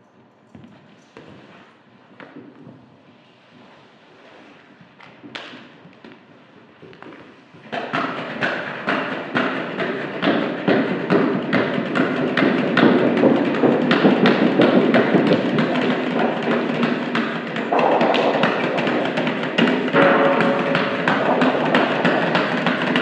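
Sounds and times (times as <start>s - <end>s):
sharp percussion taps: 11.1s - 23.0s
held tone: 19.9s - 22.4s.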